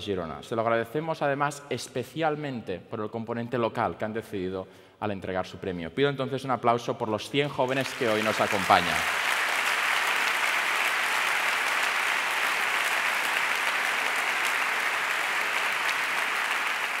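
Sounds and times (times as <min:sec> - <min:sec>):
large audience applauding: 0:07.6 - 0:17.0.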